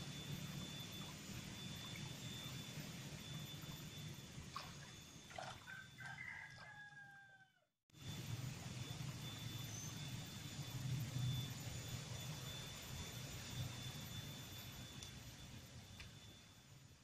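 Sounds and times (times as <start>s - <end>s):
faint thin high whine: 0.0s - 17.0s
rooster crowing: 5.4s - 7.7s.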